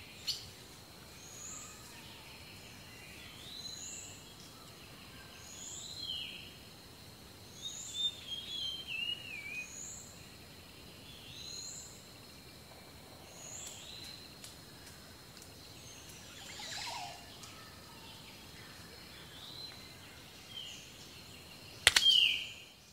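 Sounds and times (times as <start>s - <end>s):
bird warbling song: 15.8s - 22.7s
brief rustle: 21.9s - 22.3s.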